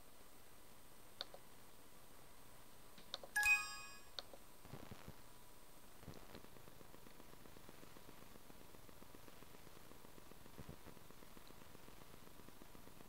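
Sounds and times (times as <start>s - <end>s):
faint mouse clicks: 1.2s - 1.4s, 3.0s - 3.4s
computer alert chime: 3.4s - 4.2s.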